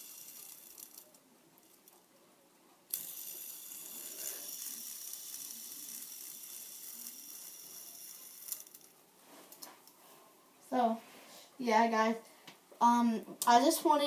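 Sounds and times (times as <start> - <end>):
fidget spinner flicked: 0.0 - 2.0, 2.9 - 8.9
fidget spinner whirring: 0.0 - 2.1, 2.9 - 10.0.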